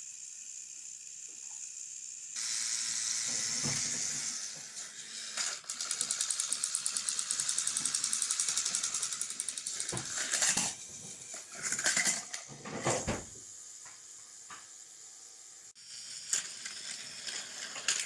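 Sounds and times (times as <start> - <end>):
toy train motors whirring: 0.0 - 18.0
plastic toys clattering: 5.1 - 13.1, 16.2 - 18.0.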